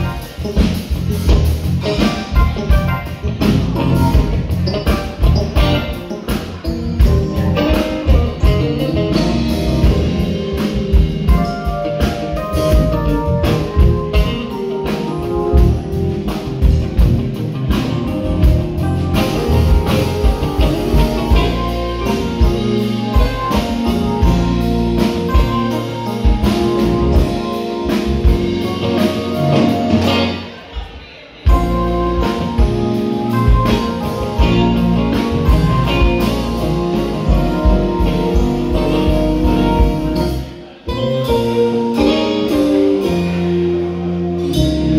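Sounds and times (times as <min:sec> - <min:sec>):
drum kit beat: 0:00.0 - 0:30.8, 0:31.5 - 0:44.9
guitar: 0:00.0 - 0:44.9
live band playing: 0:00.0 - 0:44.9.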